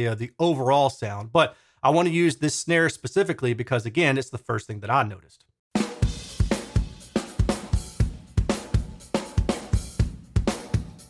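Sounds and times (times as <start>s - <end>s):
drum beat with sharp snare hits: 5.7s - 11.0s.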